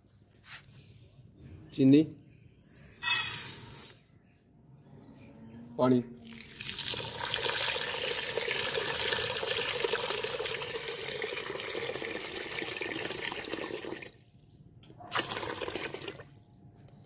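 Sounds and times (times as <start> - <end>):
water pouring into a metal pot: 6.3 - 14.2, 15.1 - 16.3.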